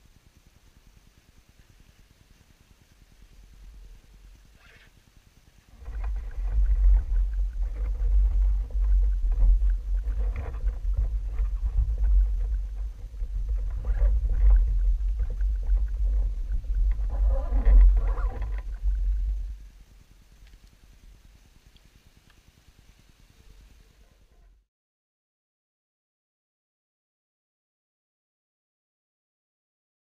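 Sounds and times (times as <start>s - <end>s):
light rustling: 5.7s - 19.8s
wind buffeting microphone: 5.7s - 20.0s.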